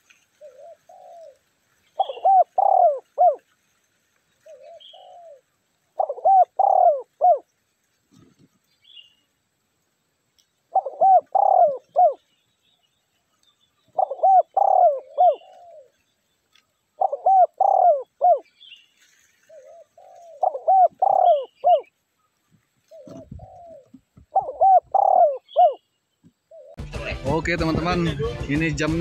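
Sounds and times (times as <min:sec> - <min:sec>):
dove cooing: 0:00.0 - 0:03.5, 0:04.4 - 0:07.5, 0:10.7 - 0:12.2, 0:13.8 - 0:16.0, 0:16.9 - 0:18.5, 0:19.5 - 0:21.9, 0:22.8 - 0:25.8, 0:26.4 - 0:26.8.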